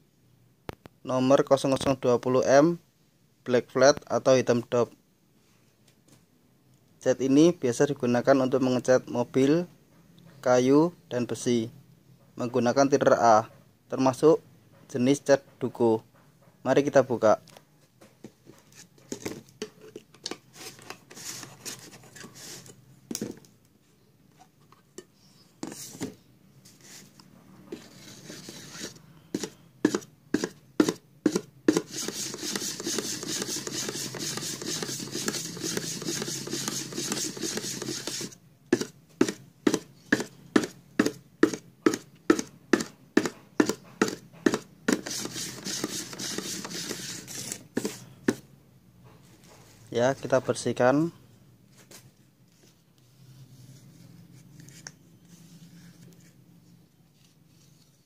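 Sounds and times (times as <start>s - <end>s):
stick scraping inside metal tin: 31.3s - 38.4s.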